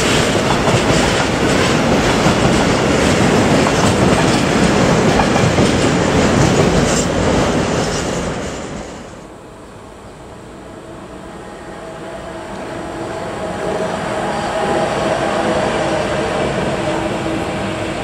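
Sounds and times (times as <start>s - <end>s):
train wheels clattering over rails: 0.0s - 9.0s
electric locomotive approaching: 0.0s - 18.0s.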